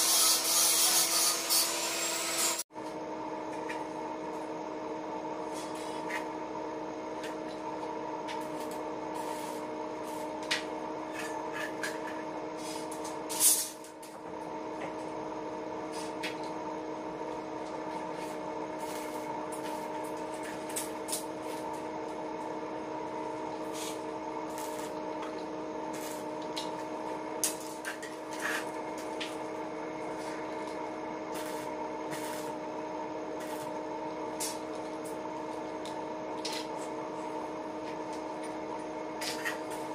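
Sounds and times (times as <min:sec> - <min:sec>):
welding machine hum: 0:03.2 - 0:39.9
welding crackles and clicks: 0:23.6 - 0:29.4, 0:31.3 - 0:32.5, 0:33.4 - 0:33.6.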